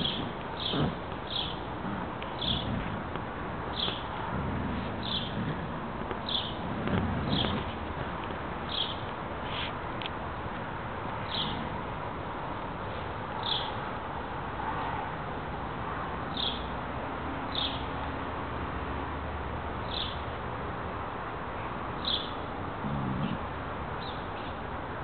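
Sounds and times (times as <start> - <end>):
bird chirping: 0.0 - 1.7, 2.4 - 2.9, 3.7 - 4.1, 4.8 - 5.6, 6.2 - 7.7, 8.7 - 9.7, 11.2 - 11.6, 13.4 - 13.8, 22.0 - 22.4
steady outdoor hiss: 0.0 - 25.0.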